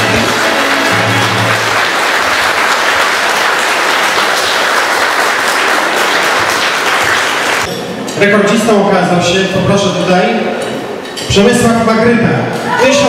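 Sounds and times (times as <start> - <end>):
background music: 0.0 - 2.2
audience applauding: 0.0 - 7.7.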